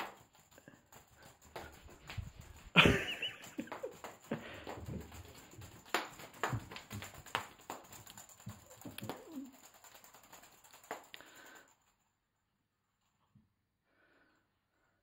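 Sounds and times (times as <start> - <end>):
kitten thumping and tapping on carpet: 1.4 - 9.4.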